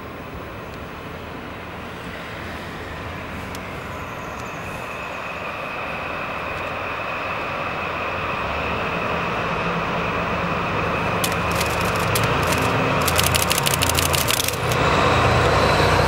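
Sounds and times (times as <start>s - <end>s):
diesel locomotive approaching: 0.0s - 16.0s
steady high whine: 10.1s - 15.2s.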